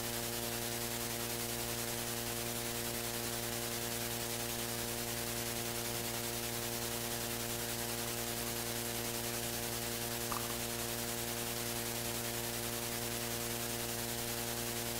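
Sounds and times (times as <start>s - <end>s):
electrical hum with hiss: 0.0s - 14.9s.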